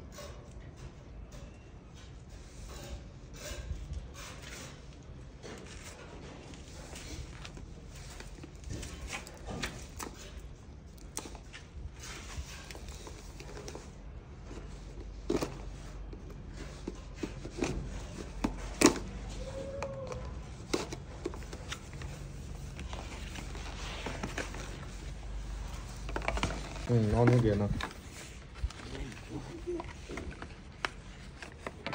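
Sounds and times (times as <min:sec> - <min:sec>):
cardboard clicks and scrapes: 0:20.1 - 0:31.9.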